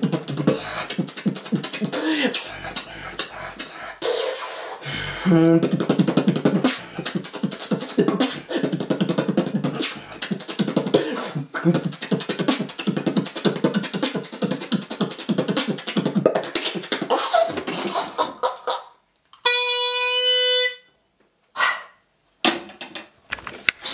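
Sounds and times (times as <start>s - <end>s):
beatboxing: 0.0s - 19.5s
held pitched tone: 19.4s - 20.9s.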